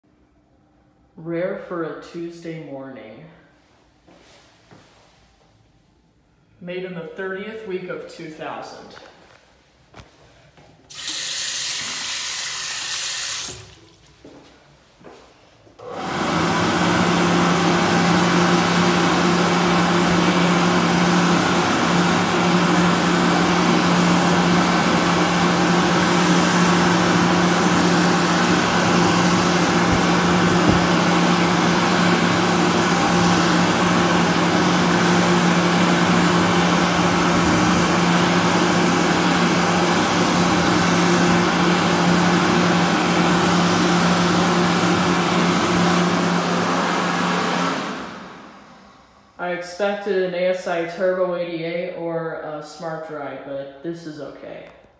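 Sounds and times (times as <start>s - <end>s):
hand dryer blowing air: 10.9s - 13.8s, 15.8s - 49.4s
blower motor hum: 15.0s - 49.5s.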